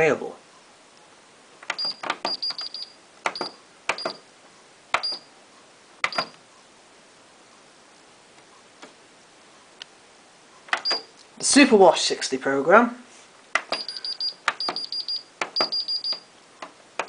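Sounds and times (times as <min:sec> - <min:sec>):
button clicks: 0:01.7 - 0:04.2, 0:04.9 - 0:05.2, 0:06.0 - 0:06.4
short high beeps: 0:13.8 - 0:16.2.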